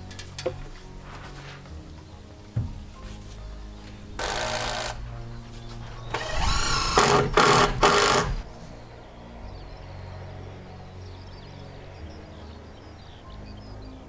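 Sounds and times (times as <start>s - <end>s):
background music: 0.0s - 14.0s
cordless drill driving screw: 4.2s - 5.0s, 6.1s - 8.4s.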